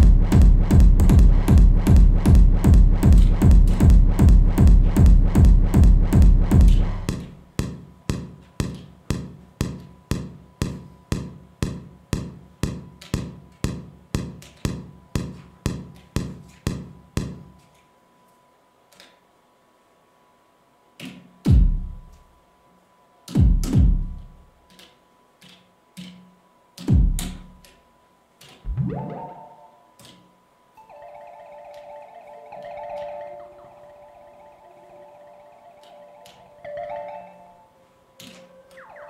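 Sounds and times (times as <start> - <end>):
techno beat: 0.0 - 17.4, 21.5 - 22.0, 23.4 - 24.3, 26.9 - 27.5
held synth tone: 28.7 - 30.0, 30.8 - 39.0.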